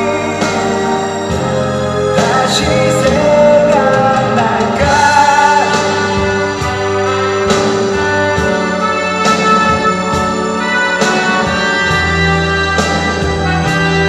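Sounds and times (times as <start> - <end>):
man singing long notes: 0.0 - 7.4
ballad over loudspeakers: 0.0 - 14.0.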